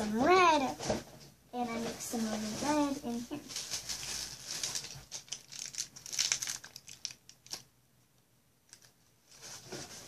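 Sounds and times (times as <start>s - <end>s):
plastic wrapping crinkling: 1.6s - 7.8s, 8.7s - 10.0s.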